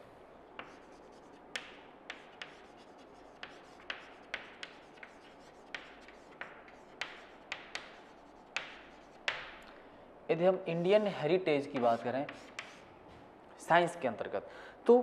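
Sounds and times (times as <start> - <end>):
chalk scratching on chalkboard: 0.6 - 9.6, 10.7 - 12.9
chalk tapping on chalkboard: 0.6 - 9.6, 10.8 - 12.9.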